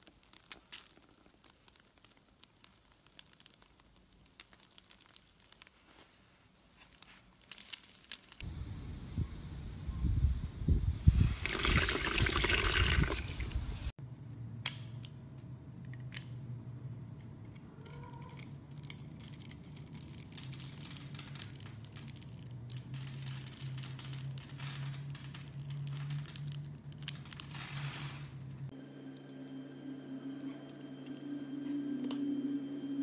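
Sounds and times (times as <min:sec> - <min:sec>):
wet sponge squish: 0:00.0 - 0:08.4.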